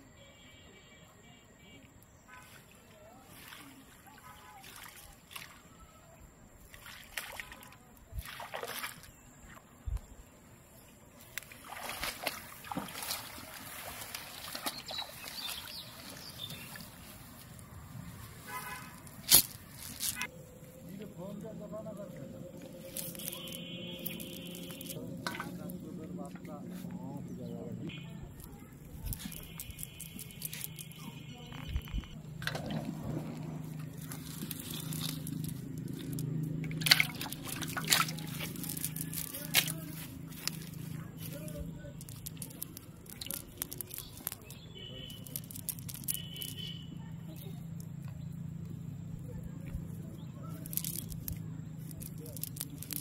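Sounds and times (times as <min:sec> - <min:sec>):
wet weeds rustling: 0:02.1 - 0:05.8, 0:06.6 - 0:09.7, 0:10.7 - 0:48.2, 0:49.5 - 0:53.0
water sloshing and dripping: 0:02.3 - 0:05.8, 0:06.6 - 0:09.7, 0:11.2 - 0:20.8, 0:22.0 - 0:27.0, 0:31.7 - 0:46.7.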